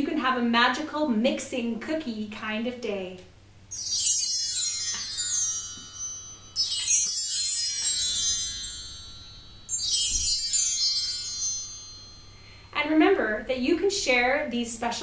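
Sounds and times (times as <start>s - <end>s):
bar chimes shimmering cascade: 3.7s - 12.8s.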